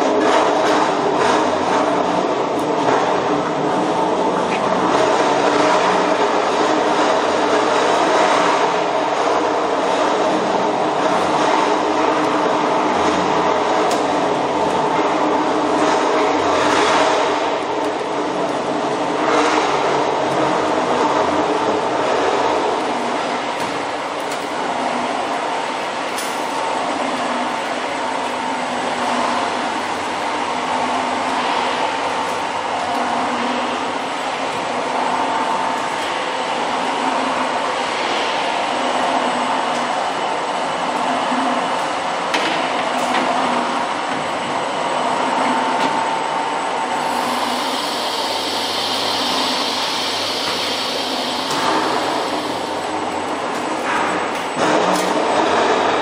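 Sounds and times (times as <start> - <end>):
factory machinery rushing din: 0.0 - 56.0
bright hiss: 47.0 - 52.8.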